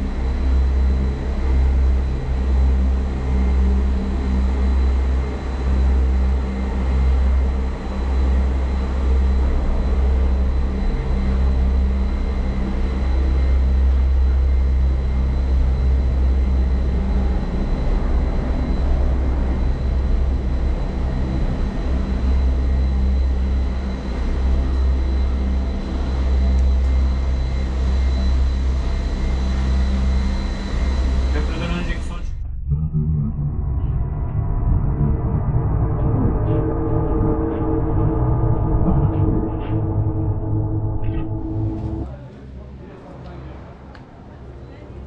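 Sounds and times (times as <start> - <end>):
high machinery whine: 0.0 - 45.0
gondola cabin rumbling: 30.1 - 43.2.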